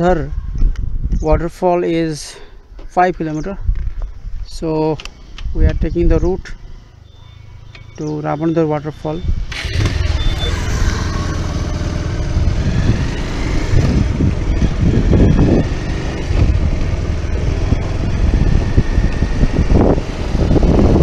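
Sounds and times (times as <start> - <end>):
motorcycle engine running: 9.4 - 21.0.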